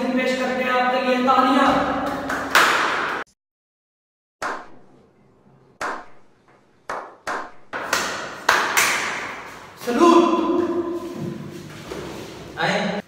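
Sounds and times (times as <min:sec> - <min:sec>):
single hand claps with echo: 0:02.0 - 0:03.2, 0:06.9 - 0:09.4
hand clapping: 0:02.1 - 0:03.2, 0:06.9 - 0:09.6.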